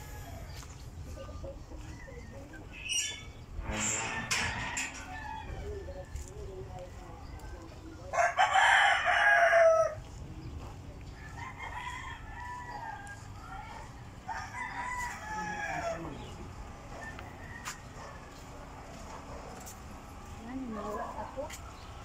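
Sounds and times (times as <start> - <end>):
rooster crowing: 3.8 - 6.0, 8.1 - 10.0, 11.2 - 16.3, 17.0 - 18.0.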